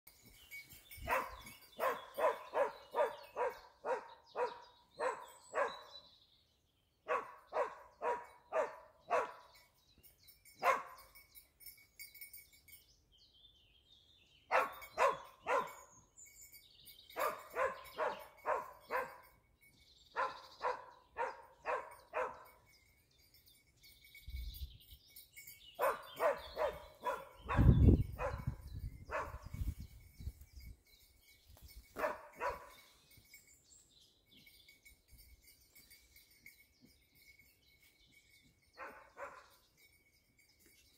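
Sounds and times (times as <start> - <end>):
hound barking in rapid runs: 1.0 - 6.0, 7.1 - 9.6, 10.6 - 11.2, 14.5 - 15.9, 17.2 - 19.3, 20.2 - 22.6, 25.8 - 29.6, 31.9 - 32.9, 38.8 - 39.6.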